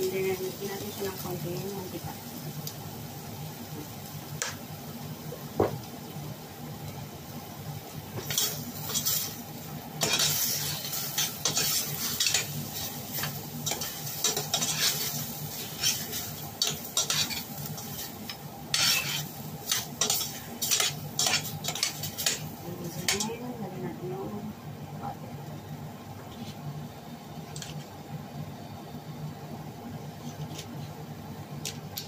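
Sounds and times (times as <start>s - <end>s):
meat sizzling: 0.0s - 23.9s
utensil scraping a metal pot: 18.7s - 22.4s.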